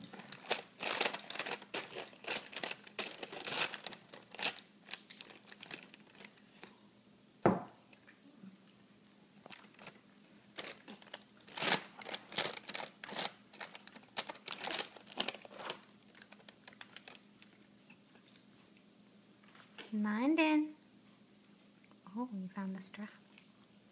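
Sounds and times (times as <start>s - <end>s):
plastic bag crinkling: 0.0s - 6.5s, 9.4s - 17.6s.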